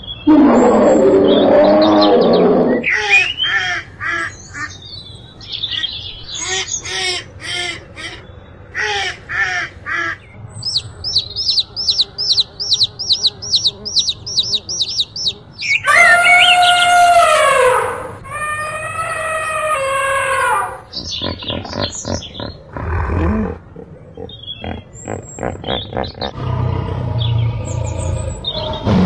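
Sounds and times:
bear growling: 0.3 - 2.9, 15.9 - 29.0
baby chicks peeping: 10.6 - 22.6
ducks quacking: 10.8 - 19.2, 19.8 - 22.8, 23.8 - 26.4.

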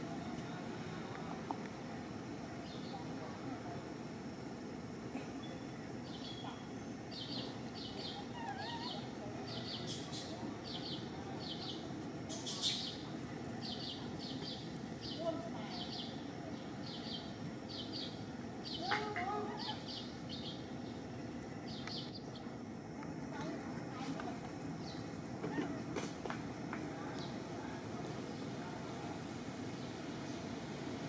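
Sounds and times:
outdoor background hum: 0.0 - 31.0
small birds chirping: 2.6 - 3.4, 5.3 - 22.6, 23.3 - 25.7.

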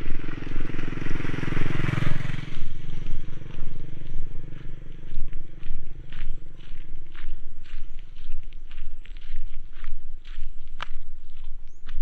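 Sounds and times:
motorcycle passing by: 0.0 - 8.9
footsteps crunching on gravel: 2.5 - 12.0.

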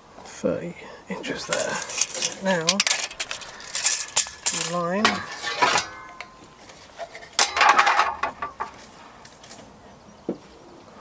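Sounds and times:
metal hand tools clinking: 1.2 - 8.9.

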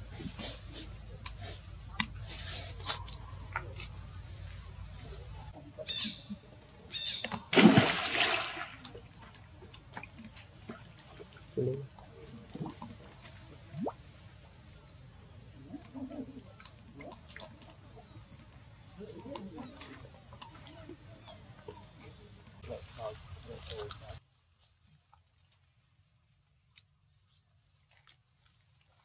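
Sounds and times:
water splashing and dripping: 5.8 - 14.1, 15.6 - 24.2
loud splash: 7.5 - 9.0
small clicks and ticks: 16.6 - 20.6.

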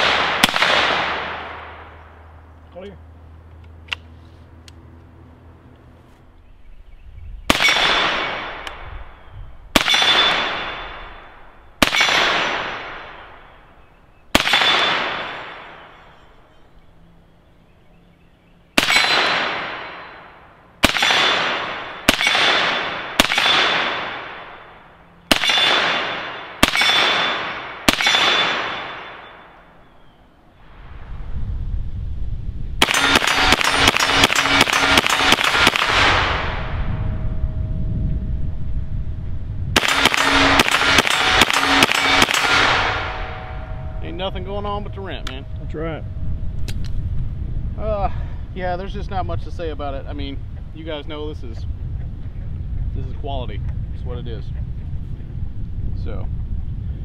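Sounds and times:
rifle shots echoing: 0.0 - 2.3, 7.5 - 16.2, 18.8 - 29.8, 32.8 - 36.9, 39.7 - 45.9
metallic ring of steel targets: 9.8 - 11.3, 25.4 - 29.6, 32.8 - 35.8, 39.8 - 47.1.

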